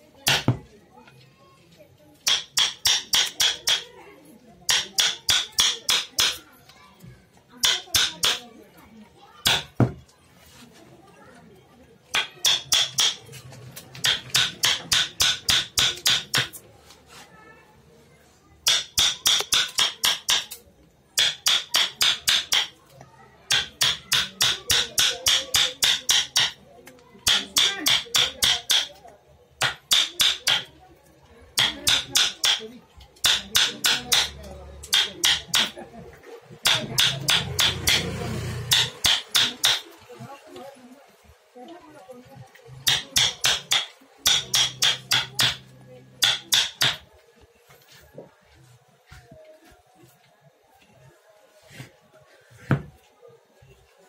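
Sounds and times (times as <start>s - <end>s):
hammer striking chisel into wood: 0.2s - 0.7s, 2.2s - 3.9s, 4.7s - 6.4s, 7.6s - 8.4s, 9.4s - 10.0s, 12.1s - 13.2s, 14.0s - 16.6s, 18.6s - 20.6s, 21.2s - 22.8s, 23.5s - 26.6s, 27.3s - 29.0s, 29.6s - 30.7s, 31.6s - 32.6s, 33.2s - 35.8s, 36.6s - 39.9s, 42.8s - 47.1s.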